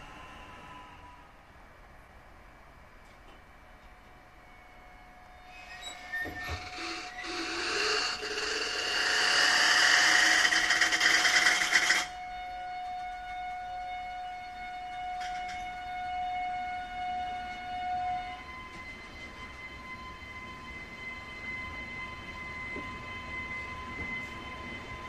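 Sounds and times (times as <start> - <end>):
train wheels squealing: 3.9 - 25.0.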